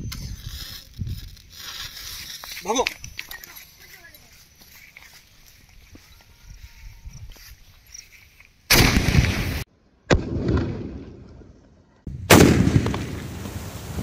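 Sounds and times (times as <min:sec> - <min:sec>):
firework explosions: 0:08.7 - 0:14.0.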